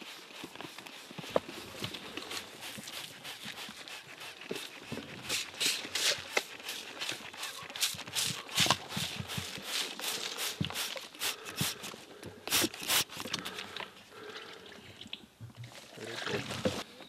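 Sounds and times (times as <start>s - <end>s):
footsteps through leaf litter: 0.0s - 11.8s.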